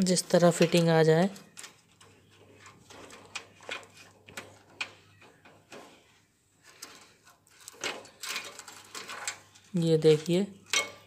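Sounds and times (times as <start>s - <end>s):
wire connectors clicking: 0.0s - 6.0s.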